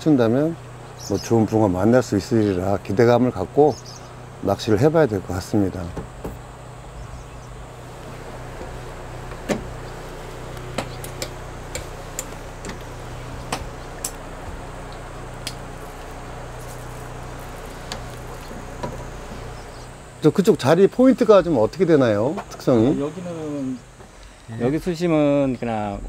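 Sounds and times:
low motor hum: 0:00.0 - 0:26.0
sharp ticks: 0:10.5 - 0:19.1.

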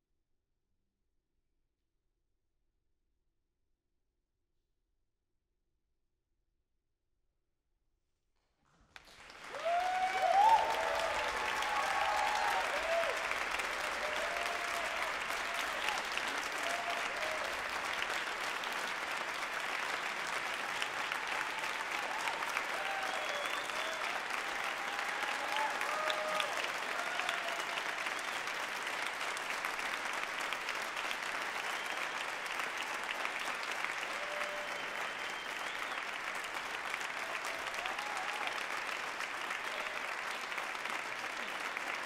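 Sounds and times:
audience applauding: 0:08.9 - 0:42.0
shouts and whoops: 0:09.5 - 0:17.7, 0:20.6 - 0:28.2, 0:34.0 - 0:35.0, 0:37.2 - 0:38.7.

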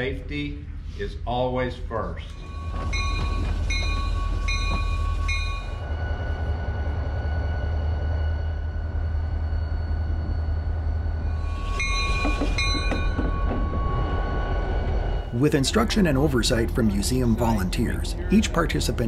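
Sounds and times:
locomotive bell ringing: 0:02.2 - 0:06.6, 0:11.3 - 0:19.0
locomotive engine rumbling: 0:02.2 - 0:19.0.

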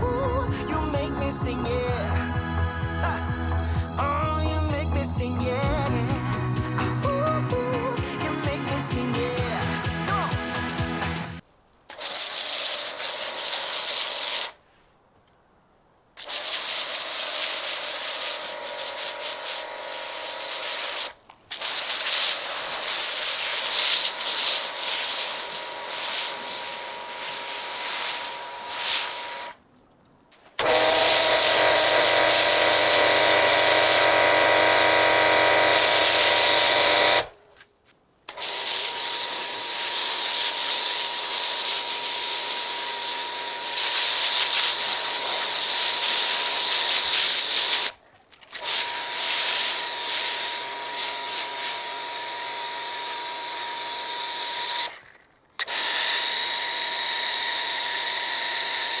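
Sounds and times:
low hum: 0:00.0 - 0:11.4
pressure washer spray hiss: 0:05.7 - 0:14.6, 0:16.2 - 0:29.6, 0:30.6 - 0:37.3, 0:38.3 - 0:48.0, 0:48.6 - 0:53.4.

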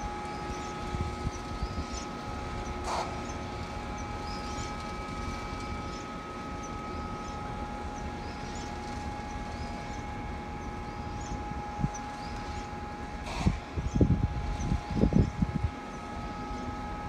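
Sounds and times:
low machinery rumble and hum: 0:00.0 - 0:17.0
whining machinery tones: 0:00.0 - 0:17.0.

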